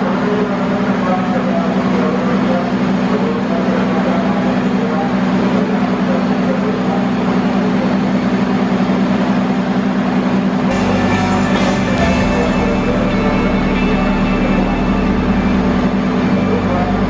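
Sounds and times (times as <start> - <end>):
electric trains humming: 0.0 - 17.0
bright higher tones: 10.7 - 17.0.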